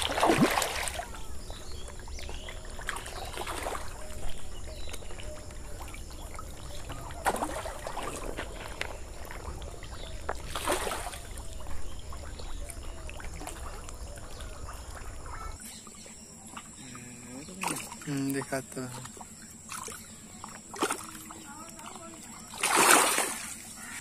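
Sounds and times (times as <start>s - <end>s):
fish splashing at water surface: 0.0s - 2.0s, 2.6s - 15.6s, 17.5s - 24.0s
steady low rumble: 1.1s - 17.3s.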